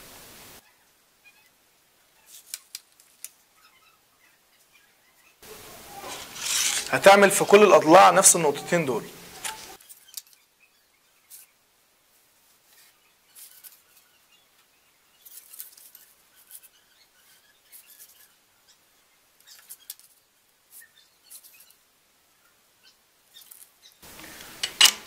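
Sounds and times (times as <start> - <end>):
steel ruler shifting on board: 6.0 - 7.0.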